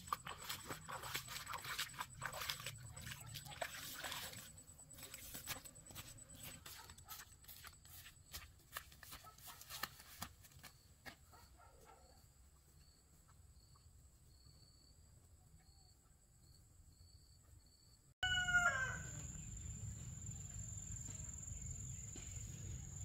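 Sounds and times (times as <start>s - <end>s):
faint insect chirping: 0.0s - 8.6s, 10.7s - 23.0s
footsteps through rustling undergrowth: 0.0s - 10.7s.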